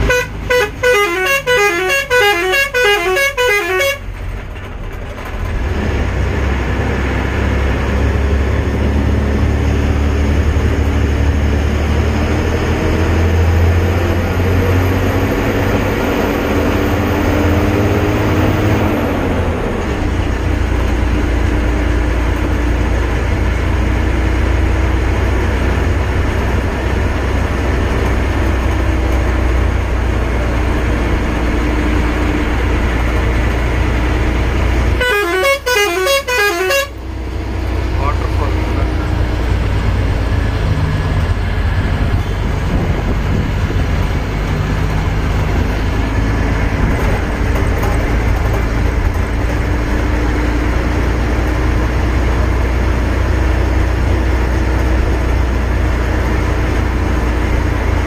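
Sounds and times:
horn quick repeated notes: 0:00.0 - 0:04.0, 0:35.0 - 0:37.0
engine and road rumble: 0:00.0 - 0:58.0
engine whine: 0:00.0 - 0:58.0.

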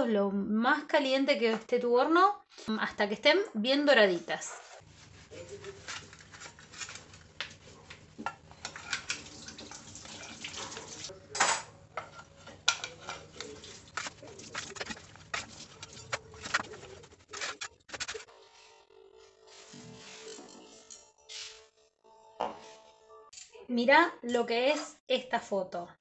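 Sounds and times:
metal spatula scraping baking sheet: 0:04.4 - 0:07.9, 0:08.5 - 0:09.3, 0:12.0 - 0:18.8.

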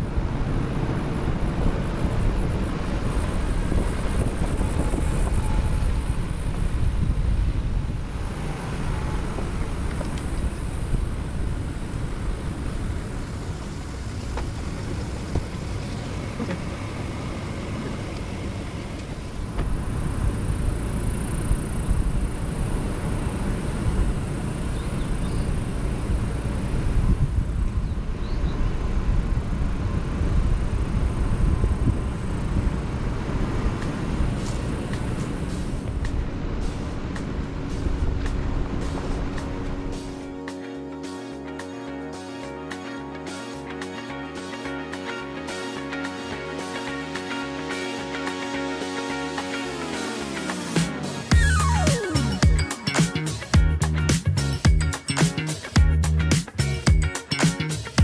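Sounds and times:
pickup truck driving on dirt road: 0:00.0 - 0:40.3.

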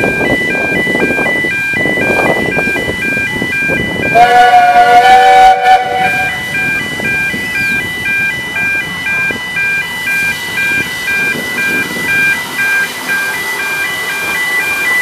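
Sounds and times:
steam locomotive rumbling: 0:00.0 - 0:15.0
two-tone crossing alarm: 0:00.0 - 0:15.0.

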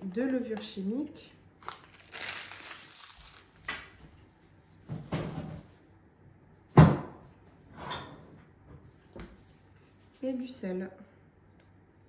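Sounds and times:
paper sachet rustling: 0:01.6 - 0:03.7.

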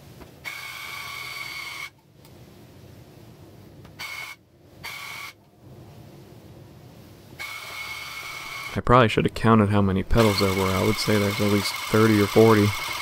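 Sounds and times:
electric tufting gun whining: 0:10.1 - 0:13.0.

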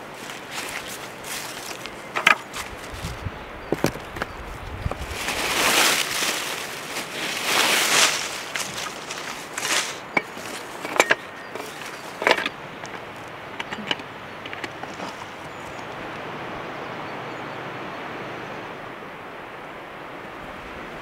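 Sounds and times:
dry leaves crunching: 0:00.0 - 0:15.7
steady outdoor hiss: 0:00.0 - 0:21.0.

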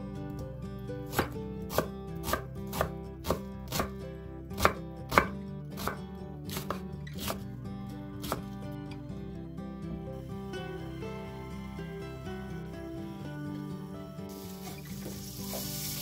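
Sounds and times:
knife chopping on wooden board: 0:01.1 - 0:03.9, 0:04.6 - 0:07.4, 0:08.2 - 0:08.5.

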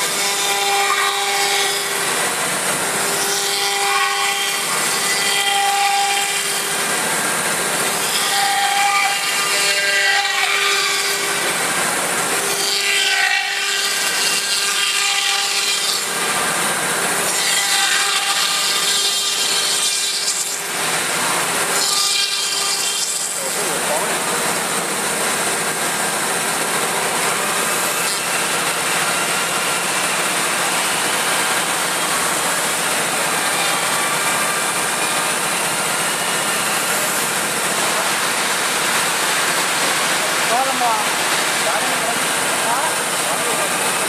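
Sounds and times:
cutter machining wood: 0:00.0 - 0:44.0
router spindle high whine: 0:20.8 - 0:44.0.

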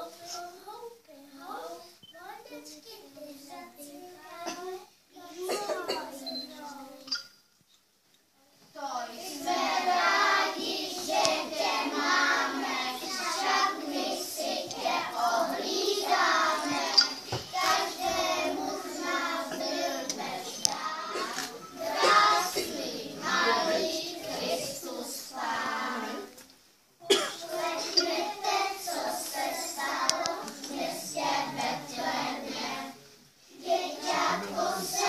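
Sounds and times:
children singing: 0:09.0 - 0:26.4, 0:27.1 - 0:35.0.

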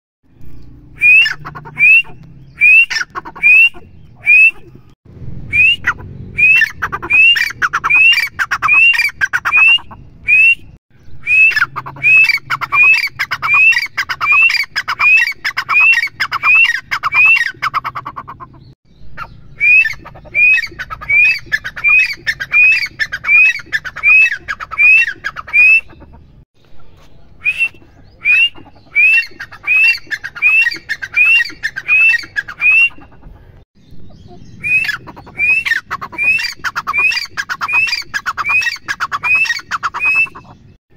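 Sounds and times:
francolin calling: 0:05.5 - 0:26.1.

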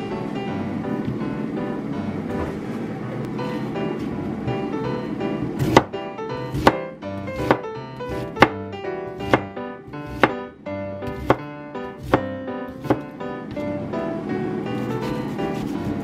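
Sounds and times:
acoustic guitar music: 0:00.0 - 0:16.0
knife slicing onion: 0:05.6 - 0:10.5, 0:11.1 - 0:13.1, 0:14.8 - 0:16.0.

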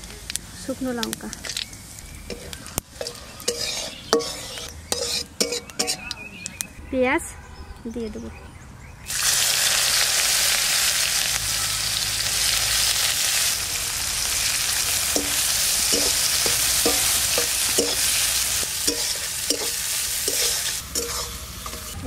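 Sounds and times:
onions sizzling in hot oil: 0:00.0 - 0:06.0, 0:09.1 - 0:22.0
spatula scraping metal pan: 0:02.3 - 0:06.1, 0:15.2 - 0:22.0.

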